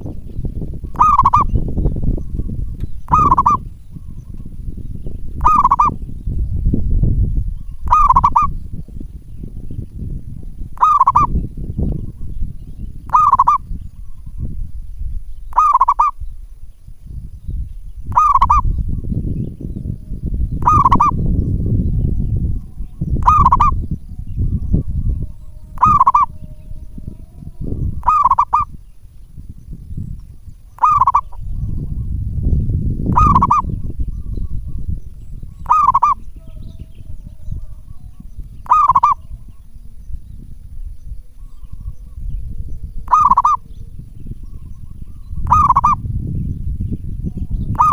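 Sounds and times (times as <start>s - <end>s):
low rumble: 0.0s - 47.9s
dove cooing: 0.9s - 4.5s, 5.4s - 6.0s, 7.7s - 8.6s, 10.8s - 12.3s, 13.0s - 14.5s, 15.5s - 16.2s, 18.1s - 28.8s, 30.8s - 32.2s, 33.1s - 34.8s, 35.5s - 40.0s, 43.0s - 46.0s, 47.3s - 47.9s.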